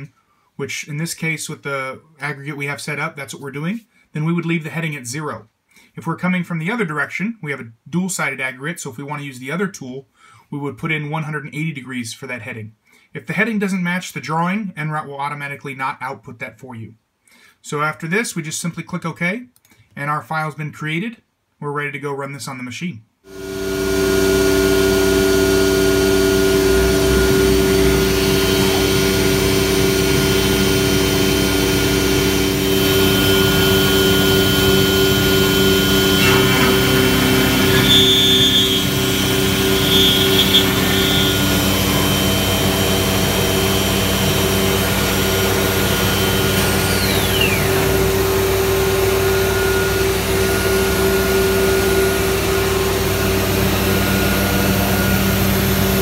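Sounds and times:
dust extraction running: 0:23.3 - 0:56.0
high whine falling in pitch: 0:23.3 - 0:56.0
router spindle whine: 0:23.3 - 0:56.0.

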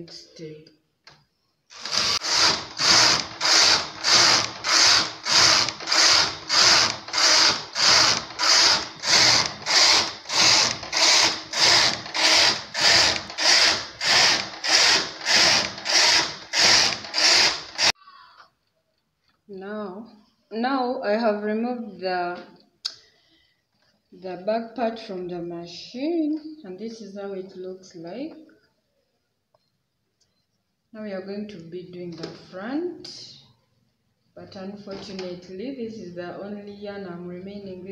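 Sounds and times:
knitting machine carriage swishing: 0:01.7 - 0:18.0.

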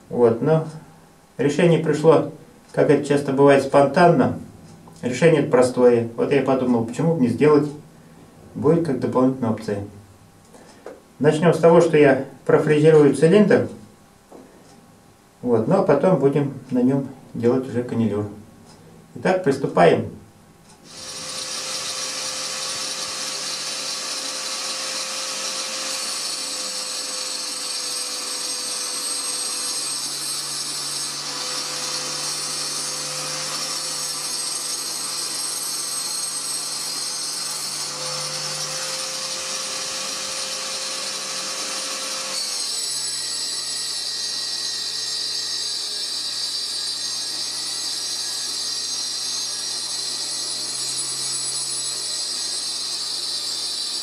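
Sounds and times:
motor hum: 0:20.6 - 0:29.0
router cutter whining: 0:20.8 - 0:54.0.

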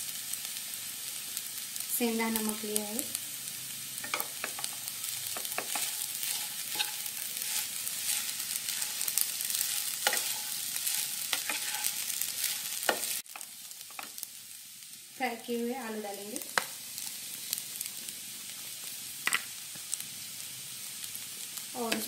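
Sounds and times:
food sizzling in oil: 0:00.0 - 0:22.0
wooden spatula scraping a pan: 0:04.0 - 0:13.2.

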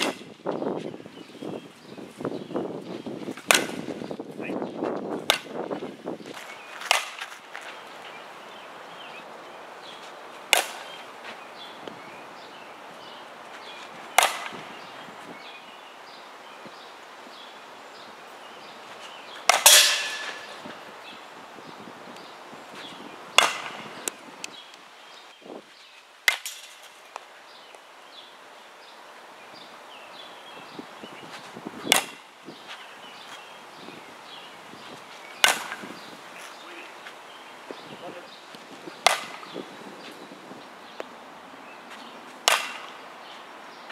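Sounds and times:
bat cracking ball: 0:00.0 - 0:00.3, 0:03.3 - 0:03.9, 0:05.2 - 0:05.6, 0:06.3 - 0:07.7, 0:10.5 - 0:11.1, 0:14.1 - 0:14.7, 0:19.4 - 0:20.8, 0:23.4 - 0:24.2, 0:26.2 - 0:27.3, 0:31.8 - 0:32.3, 0:35.3 - 0:35.9, 0:39.0 - 0:39.6, 0:42.4 - 0:43.0.

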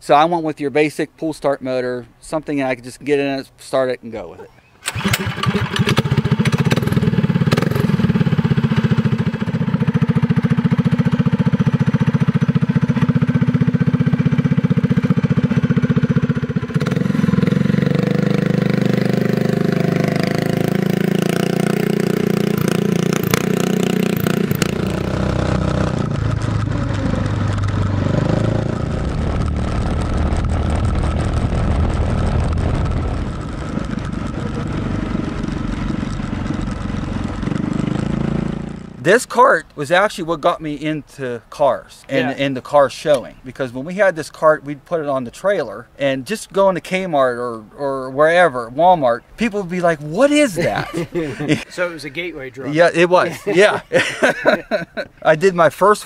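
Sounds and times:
go-kart engine running: 0:04.8 - 0:39.0.

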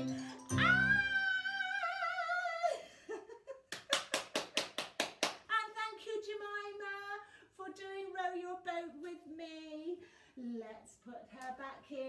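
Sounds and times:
woman singing high wavering note: 0:00.2 - 0:02.4
quick hand claps: 0:03.7 - 0:05.5.

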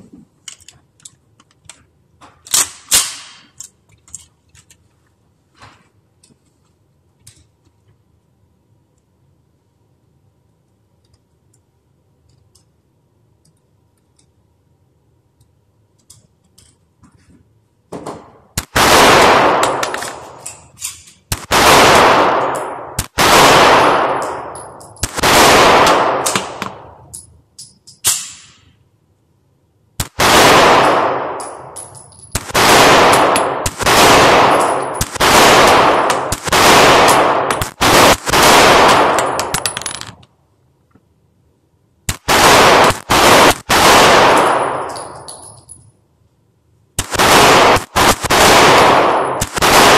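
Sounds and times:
pistol shots ringing indoors: 0:02.5 - 0:03.6, 0:18.0 - 0:27.2, 0:28.0 - 0:28.8, 0:30.0 - 0:40.2, 0:42.1 - 0:45.8, 0:47.0 - 0:49.9.

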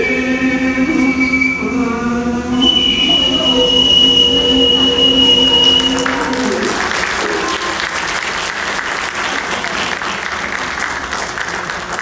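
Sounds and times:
dance music held notes: 0:00.0 - 0:07.9
audience applauding: 0:04.7 - 0:12.0.

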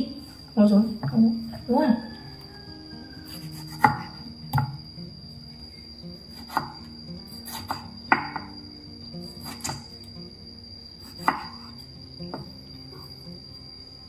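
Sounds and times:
quiet background music: 0:00.0 - 0:14.0
knife striking cutting board: 0:03.5 - 0:04.7, 0:07.4 - 0:08.5, 0:09.5 - 0:09.8.

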